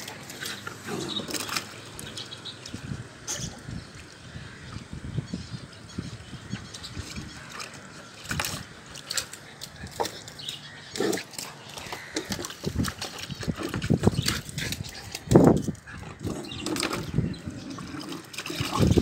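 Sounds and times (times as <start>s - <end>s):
water sloshing and splashing: 0.0s - 5.2s, 6.1s - 19.0s.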